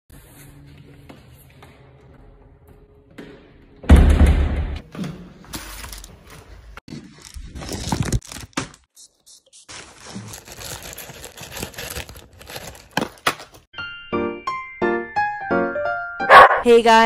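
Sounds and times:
plastic mailer crinkling and tearing: 7.0 - 8.8, 9.6 - 13.7.

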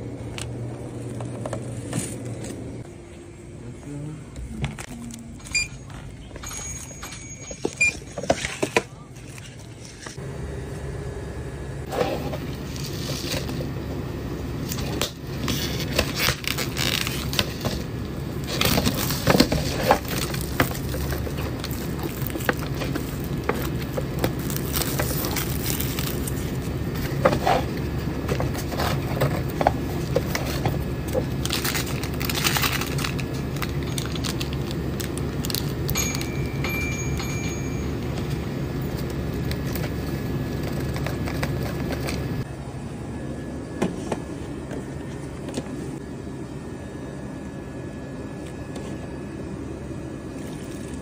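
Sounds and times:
steady low hum: 0.0 - 51.0
packaging crinkling and scraping: 11.9 - 13.8, 14.6 - 36.4, 37.1 - 42.4.

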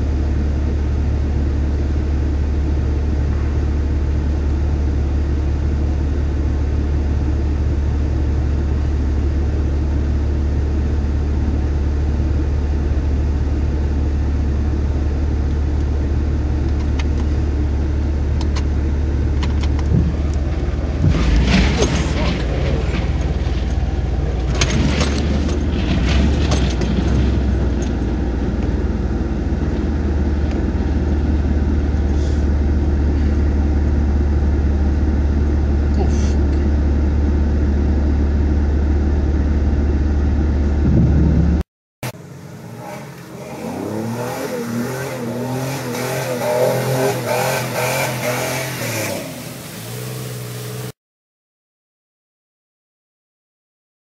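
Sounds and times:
engine rumble from inside cab: 0.0 - 51.0
shifting pitched tones: 41.0 - 50.9.

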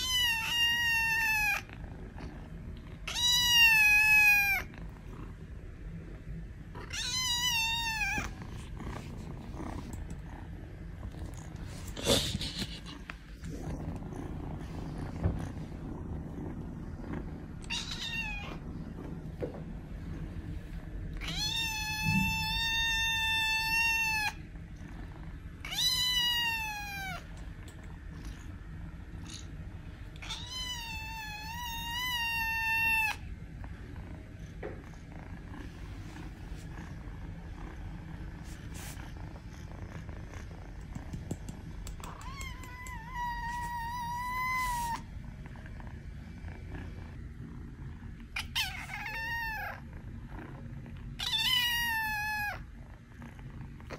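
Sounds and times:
kitten meowing: 3.1 - 4.7, 6.9 - 8.4, 17.7 - 18.5, 21.2 - 24.4, 25.7 - 27.2, 30.2 - 33.2, 42.0 - 45.0, 51.2 - 52.6.

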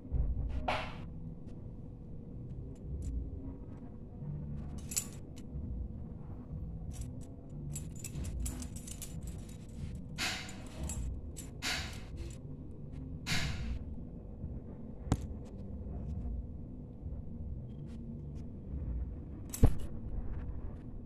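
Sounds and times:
keys jangling and clinking: 4.7 - 5.5, 6.9 - 12.4.

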